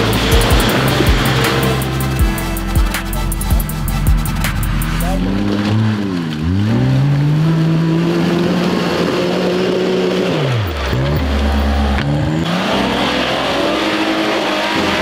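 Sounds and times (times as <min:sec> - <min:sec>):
vehicle engine revving: 0:00.0 - 0:15.0.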